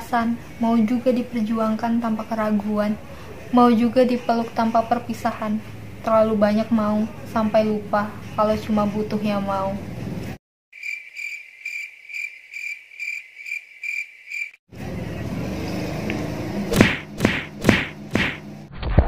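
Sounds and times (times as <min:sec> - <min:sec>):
cricket chirping: 0:10.8 - 0:14.6.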